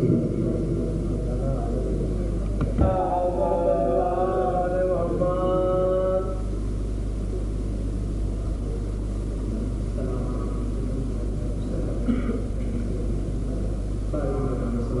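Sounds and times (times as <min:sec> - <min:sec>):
low rumble and hum: 0:00.0 - 0:15.0
man singing devotional line: 0:02.8 - 0:06.5.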